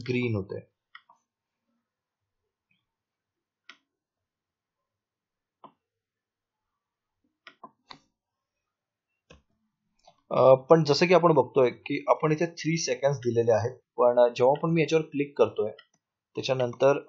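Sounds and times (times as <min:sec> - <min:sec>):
computer mouse clicking: 0:03.6 - 0:03.9, 0:07.4 - 0:08.1.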